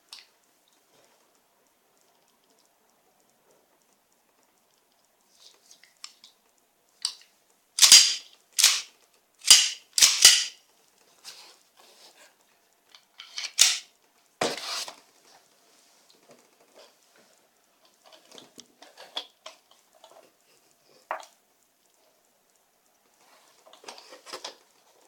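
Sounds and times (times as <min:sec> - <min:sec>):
pistol parts clacking and snapping: 0:07.8 - 0:10.6, 0:13.2 - 0:13.9.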